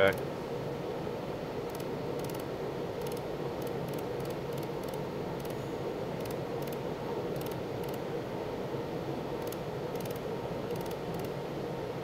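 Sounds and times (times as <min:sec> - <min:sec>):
steady machine hum: 0:00.0 - 0:12.0
faint high laser welder ticks: 0:01.7 - 0:05.6, 0:06.2 - 0:06.8, 0:07.4 - 0:08.0, 0:09.4 - 0:11.4.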